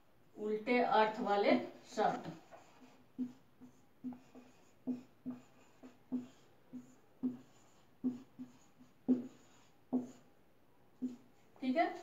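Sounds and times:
marker writing on whiteboard: 1.1 - 10.4, 11.0 - 12.0
whiteboard knocking hollowly: 4.0 - 10.2.

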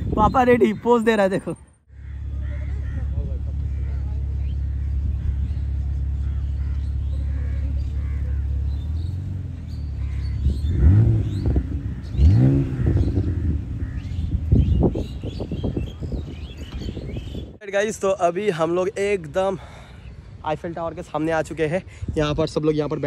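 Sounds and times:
car engine idling and revving: 2.1 - 15.3.

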